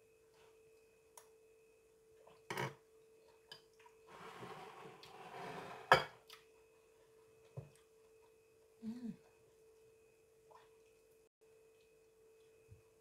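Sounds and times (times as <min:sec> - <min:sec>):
rustling scrape: 0:04.1 - 0:05.9
faint hum: 0:06.0 - 0:13.0.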